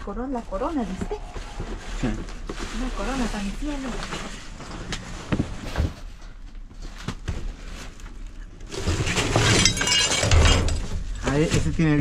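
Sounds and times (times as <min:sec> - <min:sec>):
boxes rustling and clattering: 0:00.1 - 0:12.0
glass clinking: 0:09.4 - 0:10.7.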